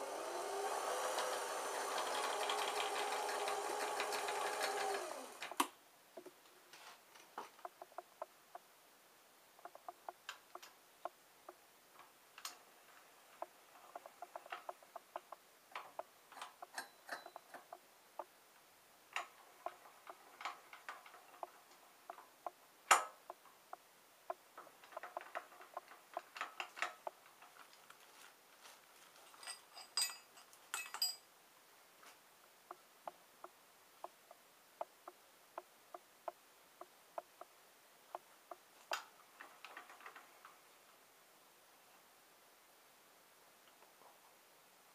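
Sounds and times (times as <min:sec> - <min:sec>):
ringing metal clinks: 0:29.4 - 0:31.2.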